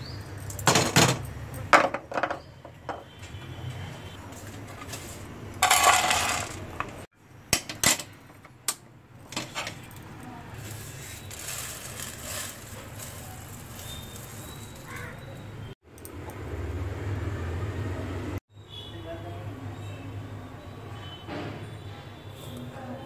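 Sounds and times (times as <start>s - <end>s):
utensils clinking: 4.6s - 8.2s, 10.6s - 15.5s
seeds rattling in metal pan: 5.6s - 6.7s, 10.5s - 15.2s
seeds rustling: 10.5s - 15.2s.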